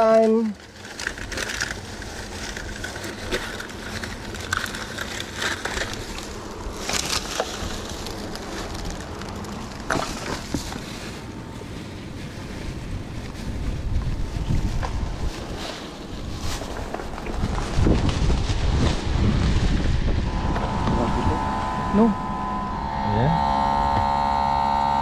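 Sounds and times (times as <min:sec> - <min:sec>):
plastic bags rustling: 0:00.0 - 0:20.5
wind rushing on microphone: 0:12.1 - 0:24.1.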